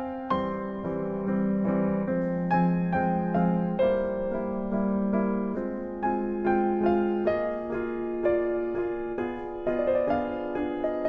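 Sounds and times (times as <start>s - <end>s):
gentle keyboard music: 0.0s - 11.0s.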